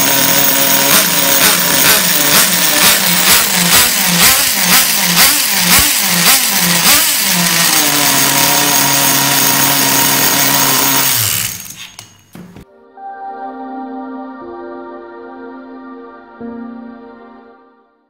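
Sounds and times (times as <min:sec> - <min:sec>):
model car engine running: 0:00.0 - 0:12.0.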